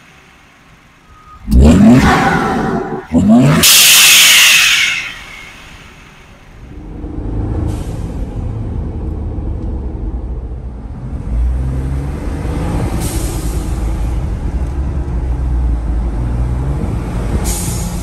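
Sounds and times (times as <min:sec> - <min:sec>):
turbocharged engine accelerating: 0:01.4 - 0:04.3, 0:06.7 - 0:18.0.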